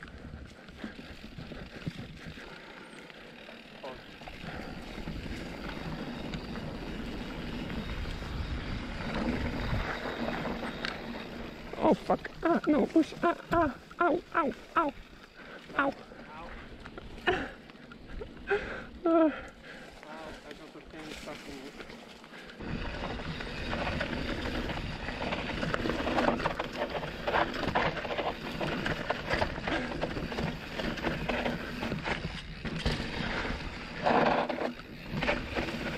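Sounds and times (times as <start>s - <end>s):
bike tyres rolling on dirt: 0.0s - 35.9s
wind buffeting microphone: 5.0s - 11.5s
tyres crunching over dirt: 19.6s - 35.9s
small knocks from bike: 25.6s - 33.4s.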